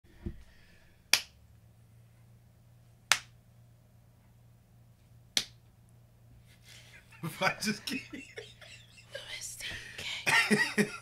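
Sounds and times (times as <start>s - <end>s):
finger snaps: 1.1s - 1.4s, 3.1s - 3.4s, 5.4s - 5.6s.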